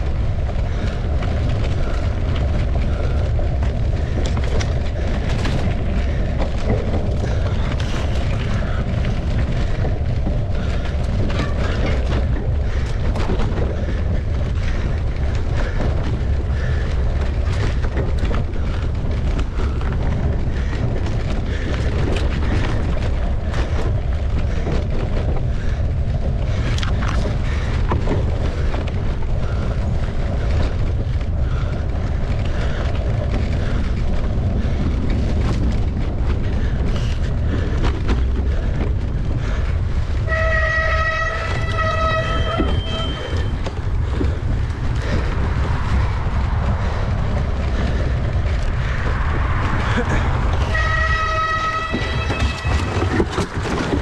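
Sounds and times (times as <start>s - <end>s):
bike rattling and knocking: 0.0s - 54.0s
wind buffeting microphone: 0.0s - 54.0s
held horn-like tone: 40.2s - 43.6s, 50.6s - 53.1s.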